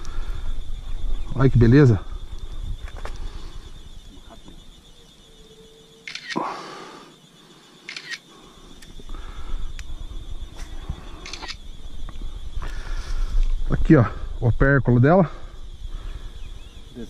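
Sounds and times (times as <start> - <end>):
phone camera shutter: 6.1 - 6.4, 7.9 - 8.2.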